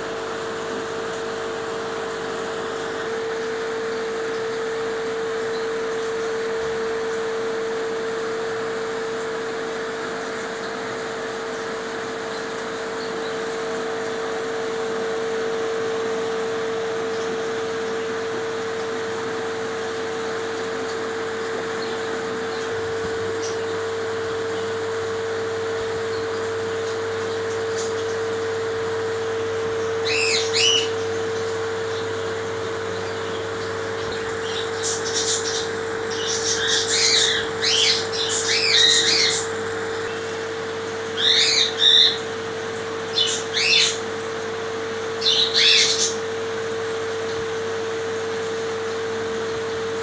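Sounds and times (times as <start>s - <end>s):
steady hum: 0.0s - 50.0s
birds chirping: 30.0s - 31.2s, 34.0s - 39.6s, 41.2s - 42.3s, 43.1s - 44.1s, 45.1s - 46.3s.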